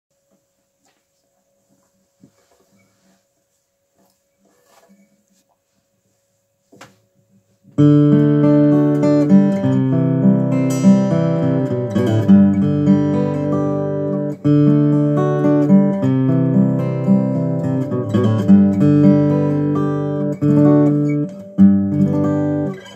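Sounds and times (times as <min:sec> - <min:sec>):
faint tap: 0:06.7 - 0:07.0
acoustic guitar picking: 0:07.7 - 0:22.9.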